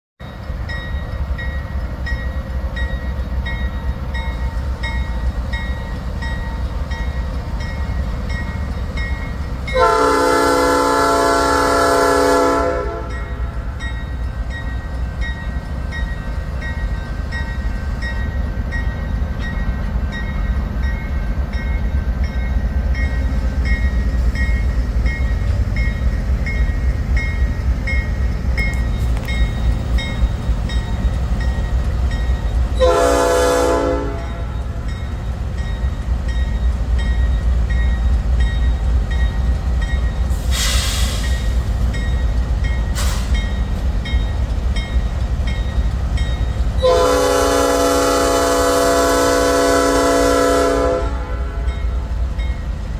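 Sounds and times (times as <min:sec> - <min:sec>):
diesel locomotives rumbling: 0:00.2 - 0:52.9
train air horn blast: 0:09.8 - 0:13.3, 0:32.8 - 0:34.5, 0:46.8 - 0:51.7.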